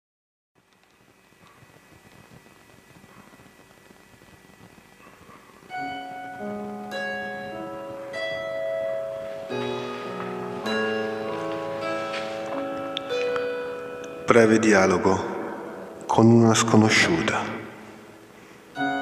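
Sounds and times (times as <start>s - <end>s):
faint hiss: 0.6s - 19.0s
slow piano music: 5.7s - 16.6s, 17.8s - 19.0s.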